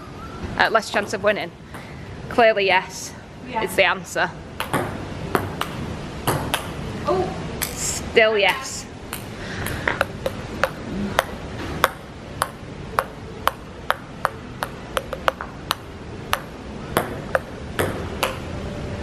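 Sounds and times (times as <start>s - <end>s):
table tennis ball clicking: 10.0s - 18.4s.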